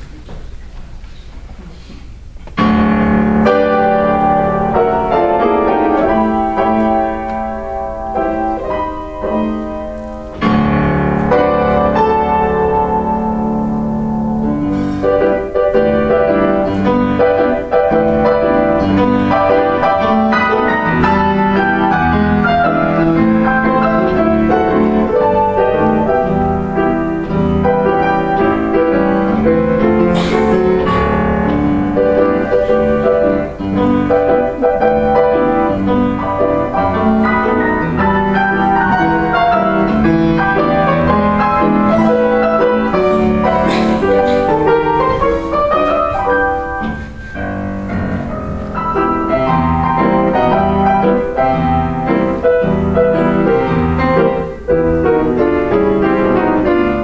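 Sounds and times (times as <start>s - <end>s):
ragtime solo piano: 2.5s - 57.0s.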